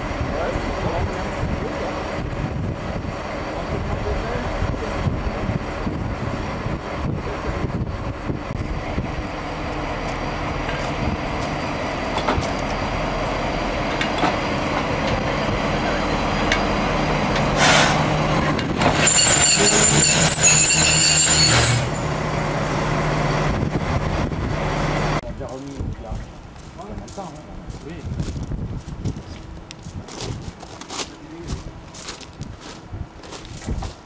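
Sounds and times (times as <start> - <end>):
diesel locomotive rumbling: 0.0 - 34.0
metallic wheel squeal: 18.8 - 22.2.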